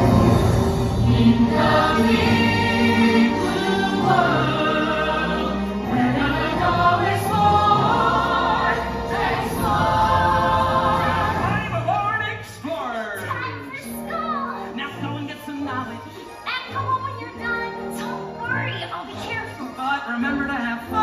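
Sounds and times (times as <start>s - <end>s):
chorus singing together: 0.0s - 12.0s
orchestral backing track: 0.0s - 21.0s.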